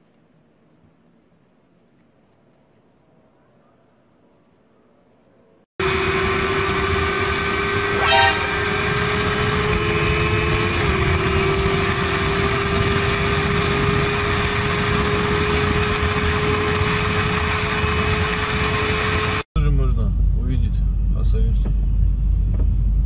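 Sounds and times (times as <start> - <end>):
high-revving motorcycle engine: 5.8 - 19.5
short horn toot: 7.8 - 8.9.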